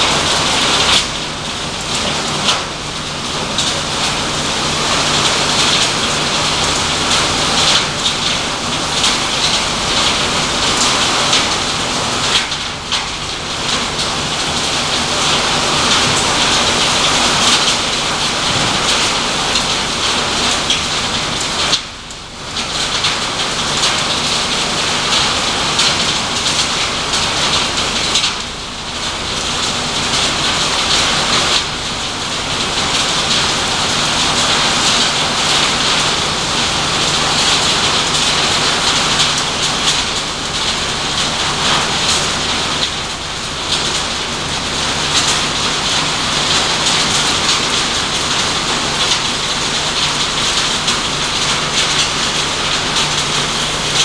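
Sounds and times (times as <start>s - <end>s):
shredding machine clatter: 0.0s - 54.0s.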